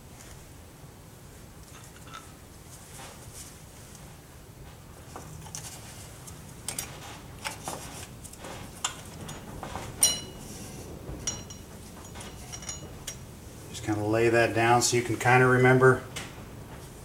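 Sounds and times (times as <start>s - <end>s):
metal springs clicking and clinking: 8.3s - 10.5s, 11.2s - 13.3s
ringing metal clink: 9.2s - 10.5s, 11.2s - 13.2s.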